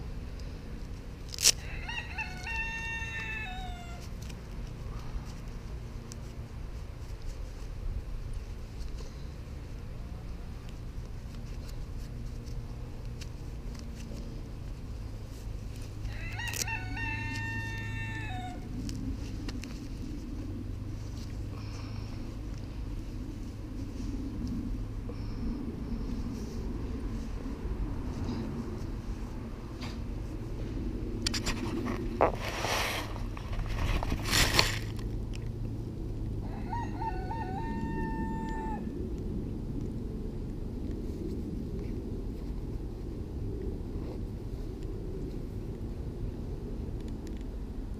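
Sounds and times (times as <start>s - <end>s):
rooster crowing: 1.6s - 4.0s, 16.1s - 18.7s, 36.4s - 39.0s
rustling: 2.2s - 35.5s.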